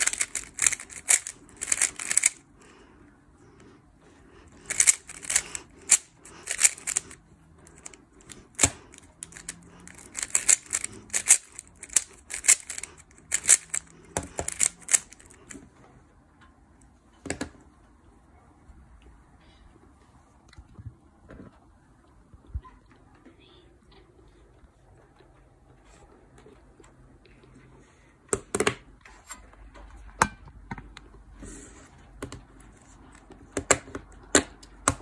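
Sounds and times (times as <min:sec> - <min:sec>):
puzzle cube plastic clicking: 0:00.0 - 0:02.4, 0:04.6 - 0:15.6.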